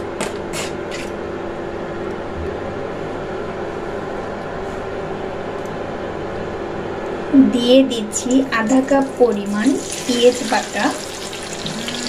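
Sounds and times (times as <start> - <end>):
spices frying in hot oil: 8.5 - 12.0.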